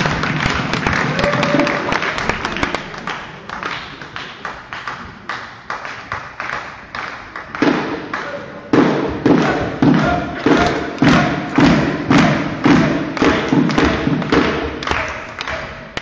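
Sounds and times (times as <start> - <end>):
spectators clapping: 0.0 - 16.0
heavy rhythmic thumps: 4.9 - 16.0.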